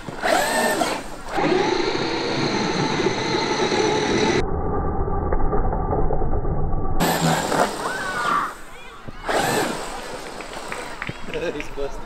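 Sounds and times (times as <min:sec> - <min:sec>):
electric motor whining: 0:00.1 - 0:04.4, 0:07.0 - 0:11.1.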